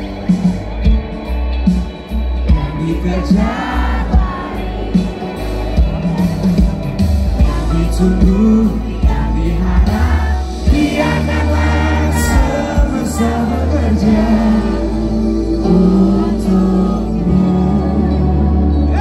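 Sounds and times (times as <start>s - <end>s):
live pop band playing: 0.0s - 19.0s
person singing: 2.4s - 5.3s, 7.4s - 19.0s.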